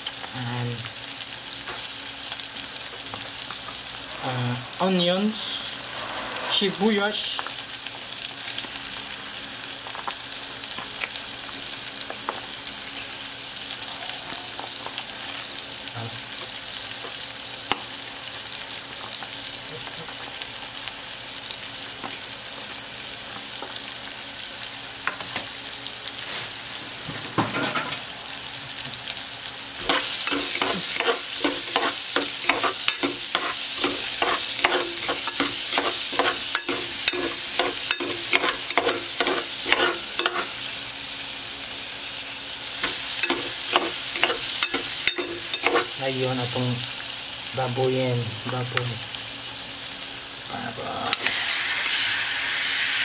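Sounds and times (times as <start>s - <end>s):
onions sizzling in hot oil: 0.0s - 53.0s
metal spoon scraping pot: 29.8s - 40.5s, 42.8s - 46.0s.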